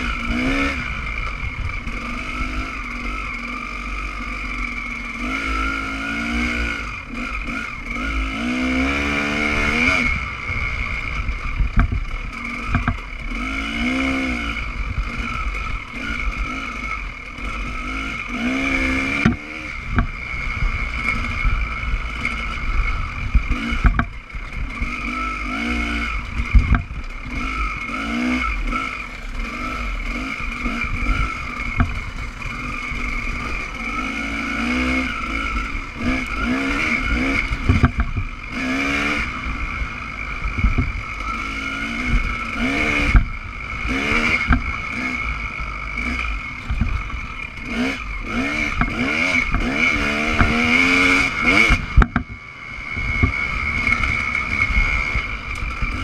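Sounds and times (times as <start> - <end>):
dirt bike engine revving: 0.0 - 56.0
bike knocking over ruts: 12.6 - 13.0.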